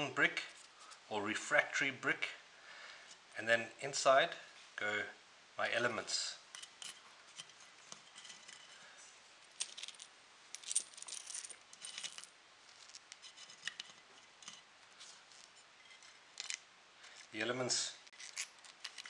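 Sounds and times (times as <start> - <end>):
small hard pieces clinking: 9.6 - 14.6, 15.3 - 17.4, 18.1 - 19.0.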